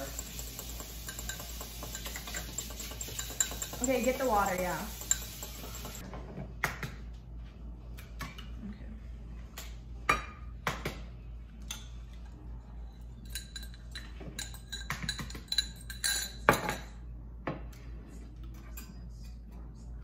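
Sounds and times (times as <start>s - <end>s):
eggs knocking on metal bowls: 0.0s - 6.0s
utensils clinking on metal: 0.0s - 6.0s, 13.2s - 17.0s.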